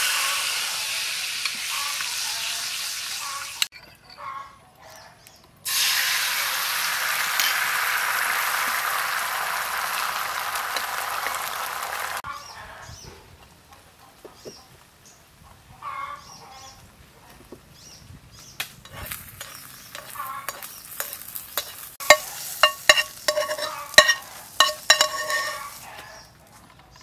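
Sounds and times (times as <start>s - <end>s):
omelette sizzling in frying pan: 5.7s - 12.2s, 18.8s - 26.0s
metal spoon clinking on pan: 18.8s - 25.8s.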